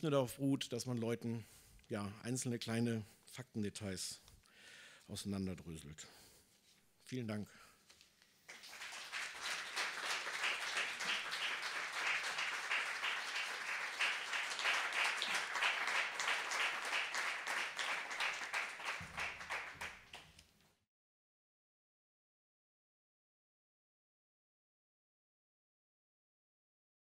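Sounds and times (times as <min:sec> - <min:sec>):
audience applause: 0:08.5 - 0:20.2.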